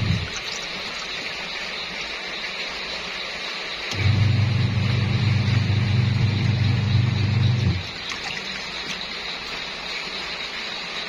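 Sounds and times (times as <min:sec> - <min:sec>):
washing machine motor humming: 0:00.0 - 0:01.1, 0:03.8 - 0:09.9
clothes churning in water: 0:00.0 - 0:01.4, 0:04.0 - 0:09.5.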